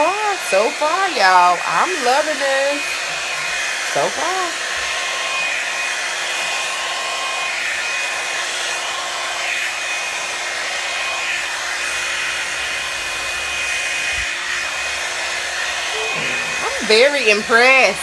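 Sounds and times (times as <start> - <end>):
hair dryer blowing air: 0.0 - 18.0
high motor whine: 11.0 - 18.0.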